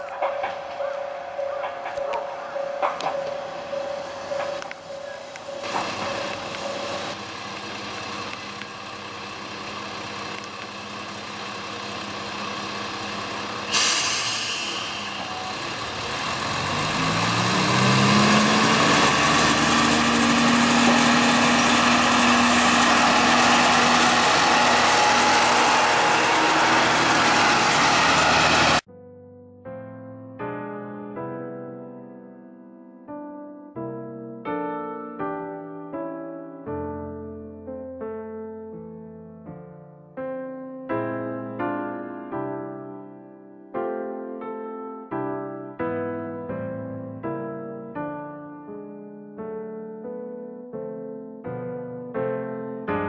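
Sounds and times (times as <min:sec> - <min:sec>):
diesel railcar engine revving: 0:00.0 - 0:28.8
compressed air hiss: 0:13.7 - 0:15.2.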